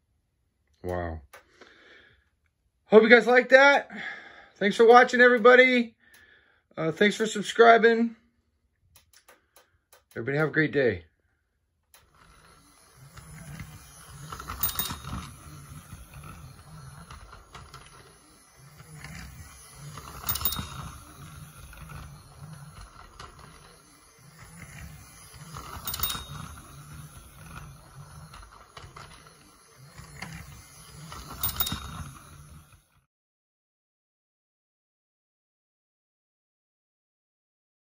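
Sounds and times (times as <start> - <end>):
toy train wheels clattering: 11.9 - 33.0
toy train motor buzzing: 11.9 - 33.1.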